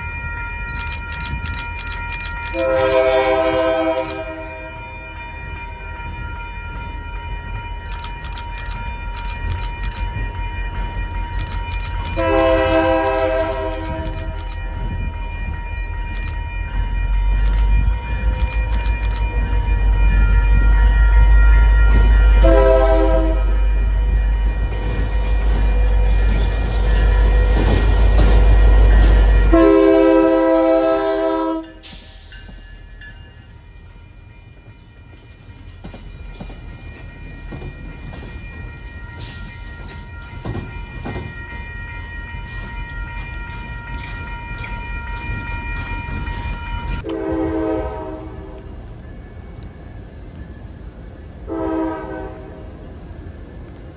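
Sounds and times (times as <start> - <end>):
train rolling noise: 0.0 - 53.9
scattered clicks: 0.7 - 4.3, 7.9 - 10.2, 11.3 - 12.3, 13.4 - 14.8, 16.0 - 16.5, 17.4 - 19.4
locomotive horn blasts: 2.5 - 4.9, 12.1 - 14.4, 20.9 - 24.4, 27.0 - 31.8, 47.0 - 48.7, 51.5 - 52.8.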